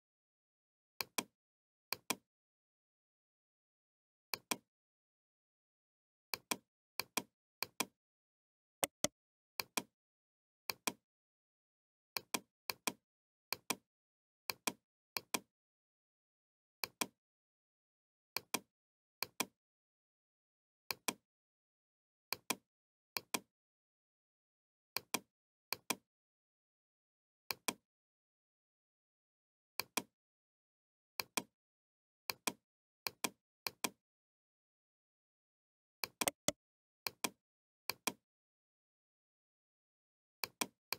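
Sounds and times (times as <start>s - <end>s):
computer mouse button clicking: 8.8s - 9.1s, 36.2s - 36.6s.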